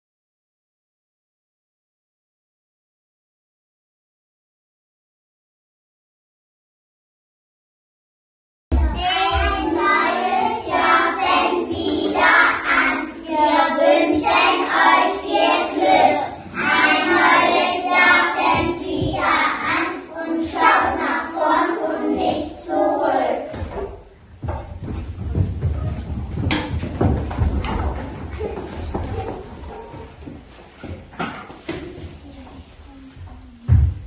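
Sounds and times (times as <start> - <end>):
children singing in unison: 8.8 - 23.9.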